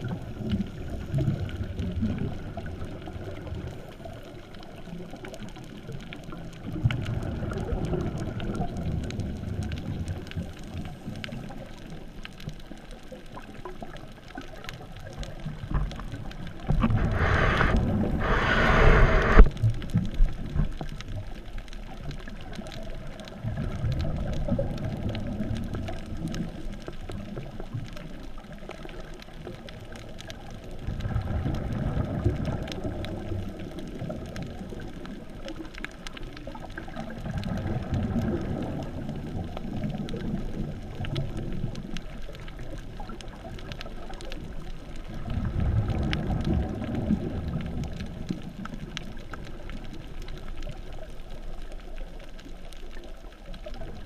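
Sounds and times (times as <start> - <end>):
faint ticks: 0.0 - 54.0
muffled underwater rush: 0.0 - 54.0.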